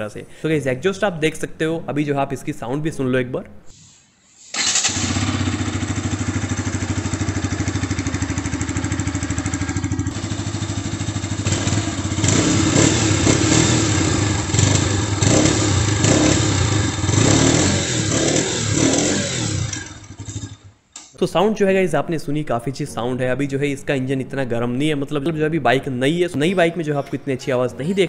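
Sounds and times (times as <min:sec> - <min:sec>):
motorcycle engine idling and revving: 0:04.6 - 0:20.7.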